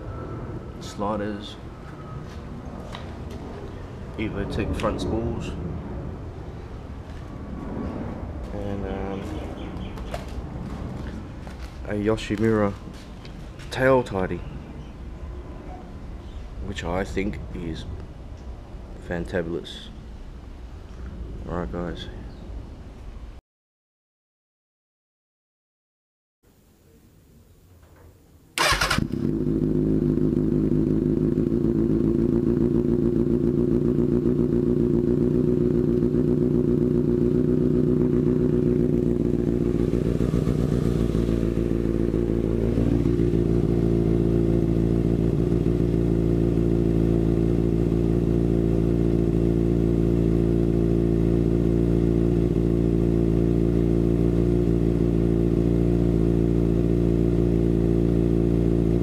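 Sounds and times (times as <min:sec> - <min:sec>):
motorcycle engine idling: 0:08.5 - 0:13.8, 0:28.6 - 0:59.0.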